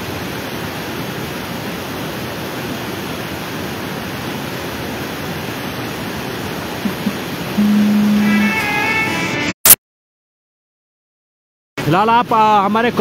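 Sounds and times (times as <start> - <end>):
stream rushing water roar: 0.0 - 9.2.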